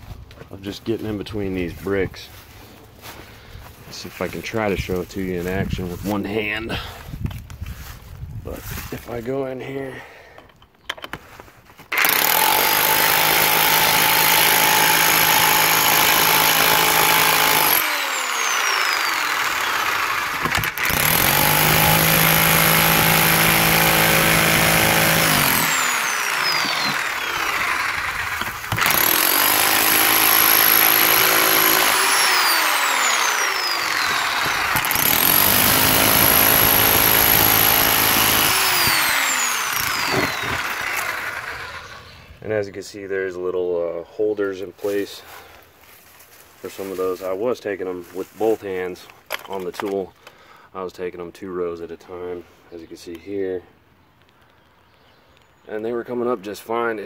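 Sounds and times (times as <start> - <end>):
rotary hammer chiselling brick mortar: 20.3 - 27.4, 33.6 - 40.7.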